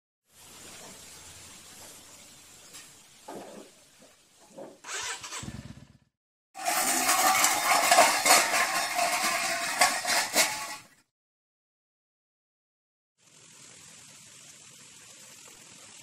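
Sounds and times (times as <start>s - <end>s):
motorcycle engine running: 4.9s - 6.9s, 13.2s - 16.0s.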